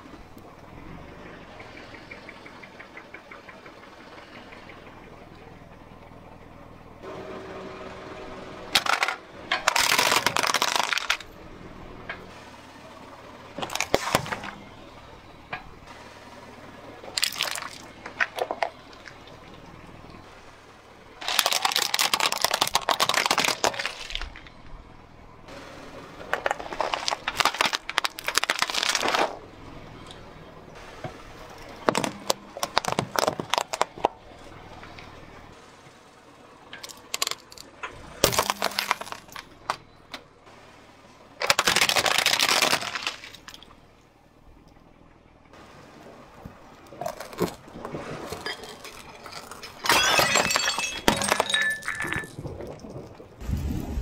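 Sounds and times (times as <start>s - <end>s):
car tyre crushing plastic: 8.7s - 11.3s, 13.5s - 14.8s, 17.1s - 19.3s, 21.2s - 24.8s, 26.2s - 29.5s, 31.5s - 35.0s, 36.7s - 40.3s, 41.4s - 43.9s, 46.4s - 54.0s.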